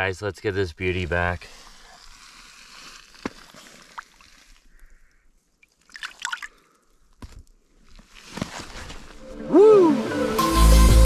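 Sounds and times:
water splashing and dripping: 2.1 - 4.7, 5.6 - 6.7.

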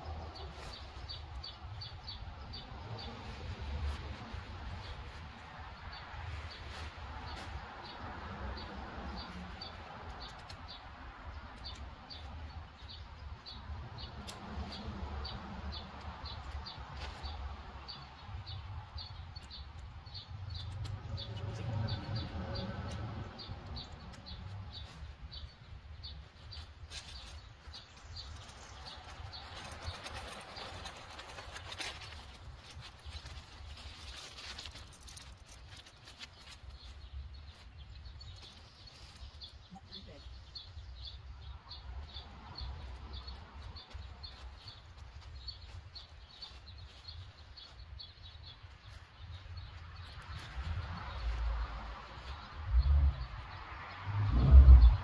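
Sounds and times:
tent clicks and rustles: 0.0 - 55.0
wind rumble on microphone: 45.2 - 55.0.

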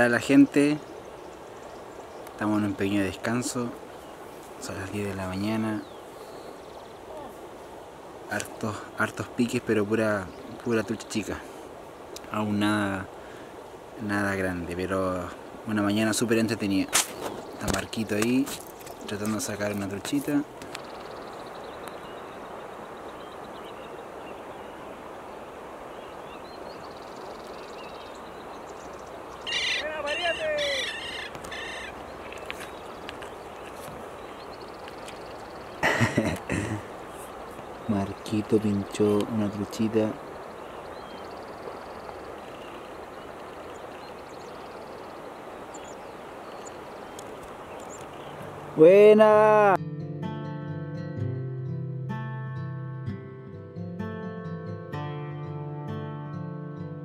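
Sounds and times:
river water rushing: 0.0 - 49.8
faint bird chirps: 20.7 - 35.8, 37.1 - 48.6
bird high ticking trill: 26.0 - 35.9.

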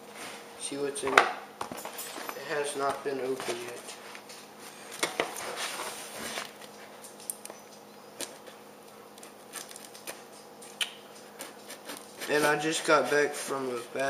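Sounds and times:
knife slicing cardboard and tape: 11.4 - 13.5.

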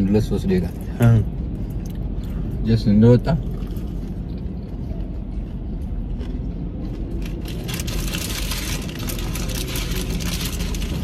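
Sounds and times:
paper food wrapper crackling: 7.2 - 11.0.

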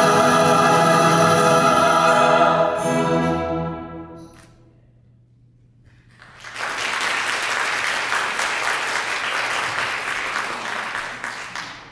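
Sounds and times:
audience applauding: 6.1 - 11.9.

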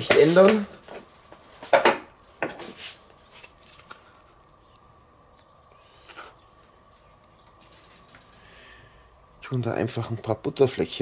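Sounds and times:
light clicks and rustles: 7.2 - 8.5.

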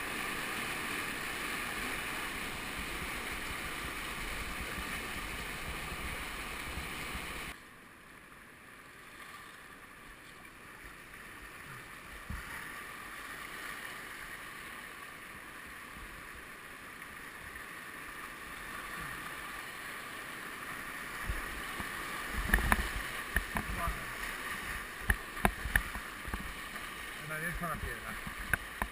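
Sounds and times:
whitewater rapids rushing: 0.0 - 7.6.

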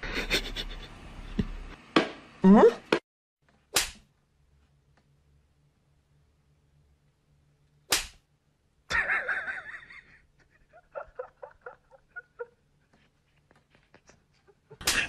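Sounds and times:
sharp whip crack: 3.7 - 4.1, 7.9 - 8.2.

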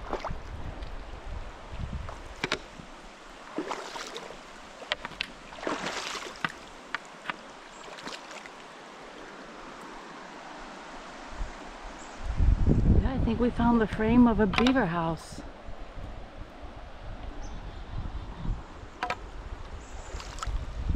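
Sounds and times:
river rushing: 1.1 - 12.4
footsteps on loose rock: 3.8 - 7.4.

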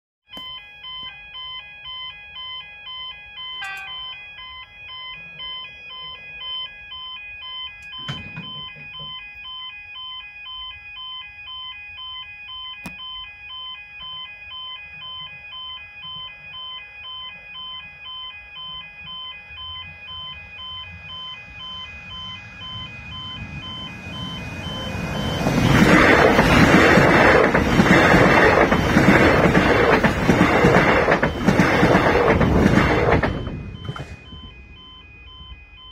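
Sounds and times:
railway crossing warning bells: 0.3 - 35.9
approaching train: 3.6 - 4.2, 19.6 - 35.8.

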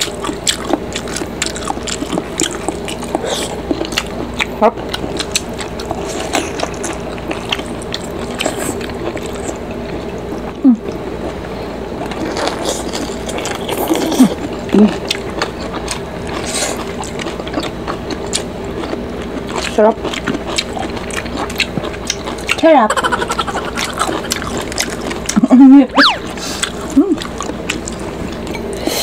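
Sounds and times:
wet chewing and slurping: 0.0 - 11.4, 12.0 - 28.9
person humming with enjoyment: 25.9 - 26.4.

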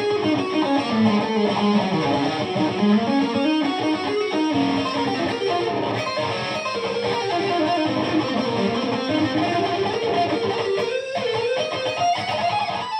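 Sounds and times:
electric guitar lead with bends: 0.0 - 12.9.

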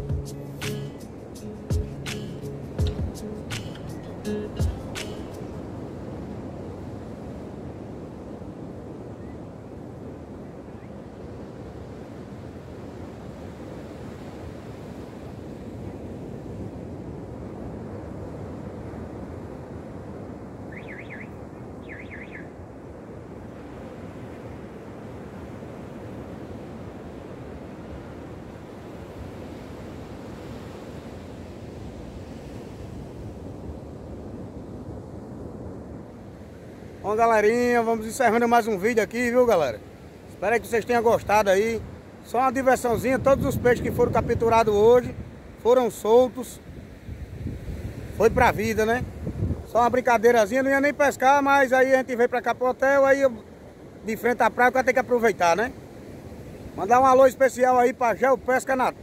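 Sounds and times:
wind noise on microphone: 0.0 - 37.2, 40.0 - 45.7, 46.6 - 50.1
sea surf on a beach: 0.0 - 59.0.

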